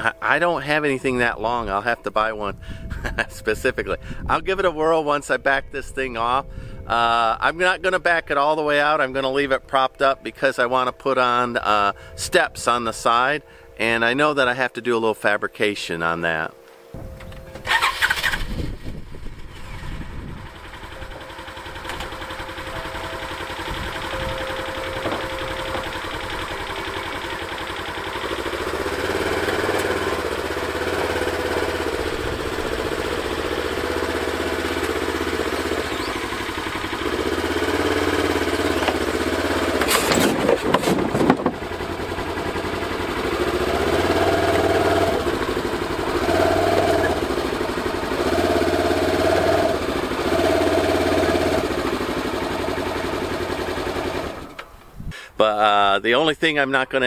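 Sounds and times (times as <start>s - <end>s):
utility vehicle engine revving: 17.6s - 54.8s.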